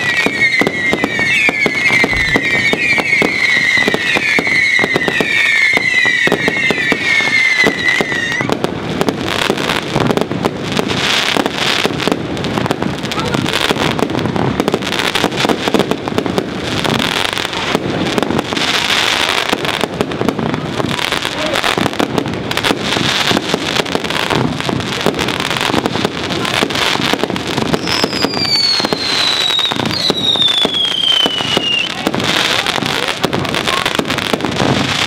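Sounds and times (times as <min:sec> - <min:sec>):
whistles falling in pitch: 0:00.0 - 0:08.4, 0:27.8 - 0:31.9
fireworks bangs: 0:00.0 - 0:35.0.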